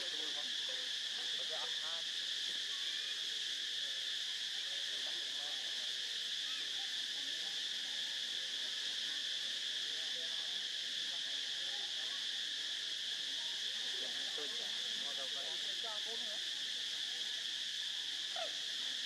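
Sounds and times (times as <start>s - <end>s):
insect chorus drone: 0.0s - 19.0s.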